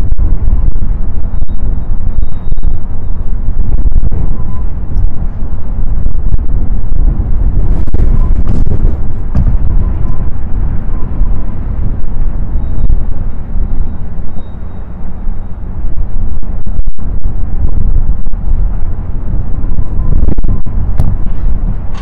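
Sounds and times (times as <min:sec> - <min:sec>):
gusty wind buffeting microphone: 0:00.0 - 0:22.0.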